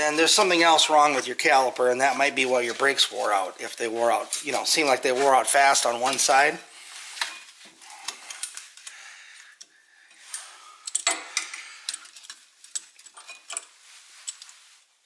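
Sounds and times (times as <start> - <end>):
metal clamp clicking and clinking: 10.8 - 14.5.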